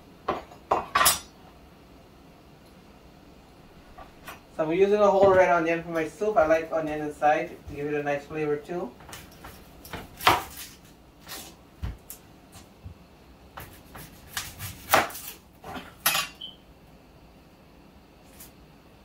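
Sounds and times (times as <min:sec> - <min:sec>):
knife chopping on wooden board: 0:09.0 - 0:12.0, 0:13.6 - 0:15.9.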